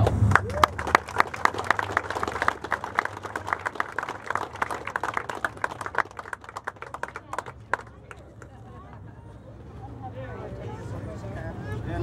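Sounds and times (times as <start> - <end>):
crowd applauding: 0.0 - 9.0.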